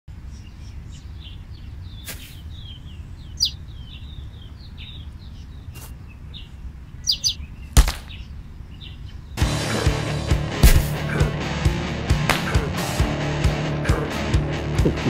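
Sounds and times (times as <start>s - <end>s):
small birds chirping: 0.1s - 11.4s
cartoon punch impact: 10.6s - 11.1s.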